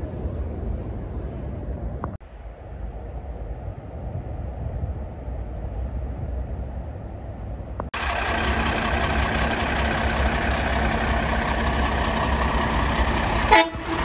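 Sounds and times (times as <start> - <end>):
low rumble: 0.0 - 14.0
diesel engine idling: 8.0 - 14.0.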